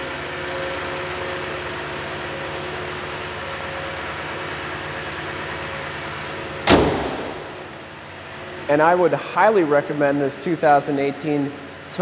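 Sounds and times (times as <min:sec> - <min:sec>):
car engine idling: 0:00.0 - 0:12.0
car hood slamming: 0:06.6 - 0:07.7.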